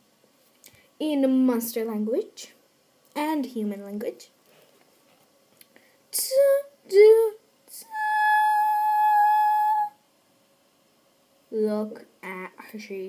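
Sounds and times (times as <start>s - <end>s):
girl singing a sung fanfare: 6.2s - 10.0s.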